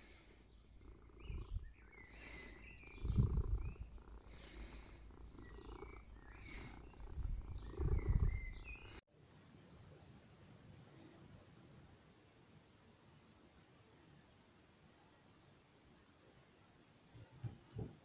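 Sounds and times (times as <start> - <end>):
cat purring: 0.0 - 9.0.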